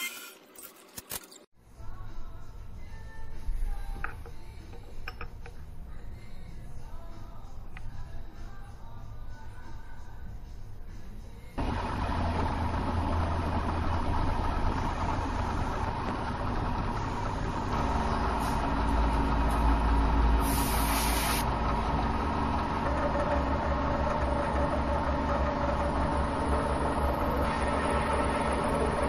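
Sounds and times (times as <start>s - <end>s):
milling machine humming and whining: 11.6s - 20.8s, 21.4s - 29.0s.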